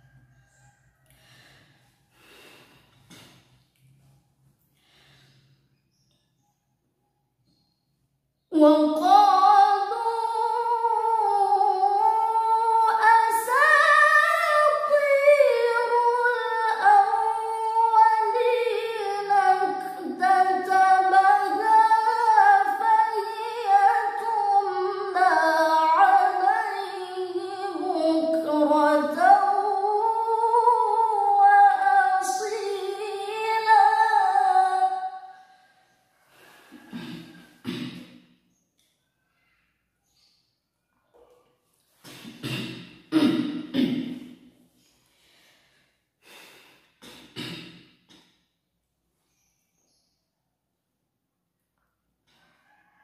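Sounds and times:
woman chanting recitation: 0:08.5 - 0:35.3.

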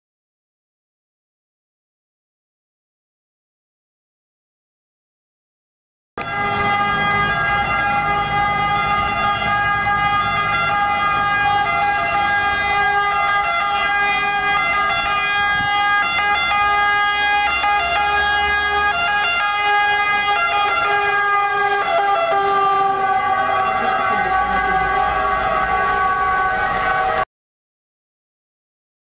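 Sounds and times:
fire engine siren: 0:06.2 - 0:27.3.

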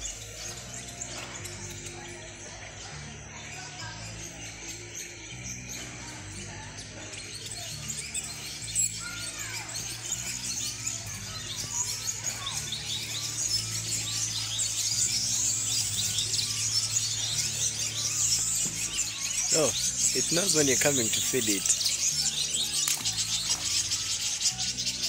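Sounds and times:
background music: 0:00.0 - 0:25.0
birds chirping: 0:00.0 - 0:25.0.

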